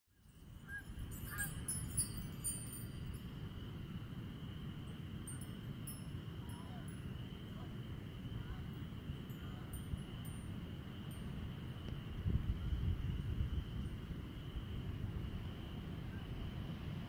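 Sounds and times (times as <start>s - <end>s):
light high tinkling: 0.1s - 13.8s
wind through trees: 0.1s - 17.0s
frogs chorus: 0.6s - 14.9s.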